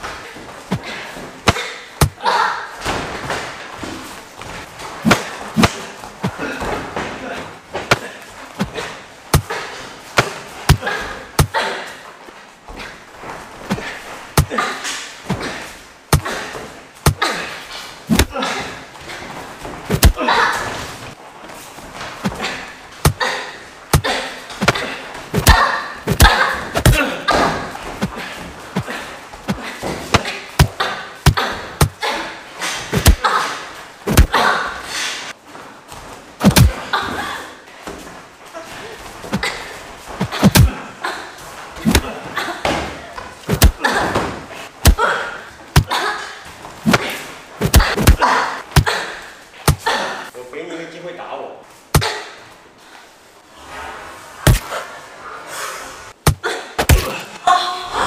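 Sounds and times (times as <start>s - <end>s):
fighters grunting and exhaling: 0.1s - 2.8s, 5.0s - 12.1s, 13.6s - 21.0s, 22.2s - 35.4s, 36.4s - 37.6s, 38.6s - 50.4s, 54.4s - 58.0s
punches thudding: 0.7s - 2.3s, 5.0s - 7.1s, 7.8s - 11.6s, 13.6s - 14.6s, 15.3s - 17.5s, 18.1s - 18.4s, 19.9s - 20.4s, 23.0s - 32.1s, 32.9s - 33.3s, 34.1s - 34.4s, 36.4s - 36.9s, 39.3s - 40.8s, 41.8s - 45.1s, 45.7s - 46.0s, 46.8s - 49.0s, 49.6s - 50.0s, 54.5s - 54.7s, 56.2s - 57.4s
gloved punches slapping and thudding: 5.0s - 5.8s, 10.2s - 11.6s, 18.1s - 18.4s, 19.9s - 20.2s, 23.9s - 28.2s, 32.9s - 33.2s, 34.1s - 34.4s, 36.4s - 36.8s, 40.2s - 40.8s, 41.8s - 42.1s, 43.5s - 43.8s, 44.8s - 45.0s, 46.9s - 49.0s, 49.6s - 49.9s, 54.5s - 54.7s, 56.2s - 57.2s.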